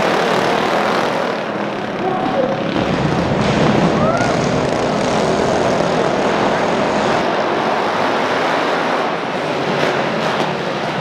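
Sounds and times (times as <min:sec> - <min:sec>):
mini bike engines racing: 0:00.0 - 0:11.0.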